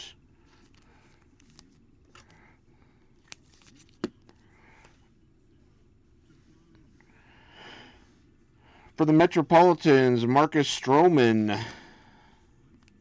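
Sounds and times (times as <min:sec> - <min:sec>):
faint card rustling: 0:00.4 - 0:05.1.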